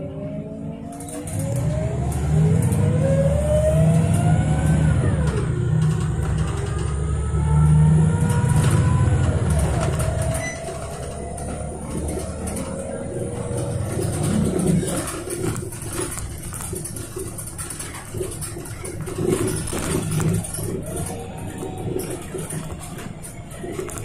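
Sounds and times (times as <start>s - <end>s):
bus engine rumbling and whining: 0.0s - 24.0s.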